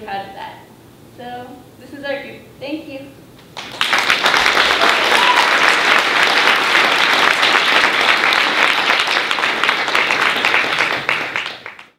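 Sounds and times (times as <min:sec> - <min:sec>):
audience applauding: 0:03.5 - 0:11.9.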